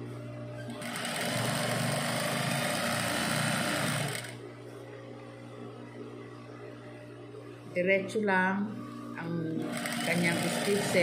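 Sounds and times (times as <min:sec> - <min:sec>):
sewing machine running: 0:00.7 - 0:04.4, 0:09.5 - 0:11.0.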